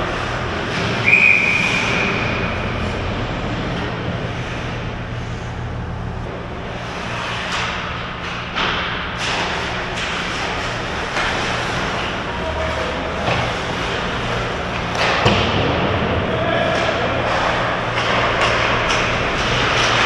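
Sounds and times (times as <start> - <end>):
steady low hum: 0.0 - 20.0
skate blades scraping ice: 6.6 - 15.3, 17.1 - 20.0.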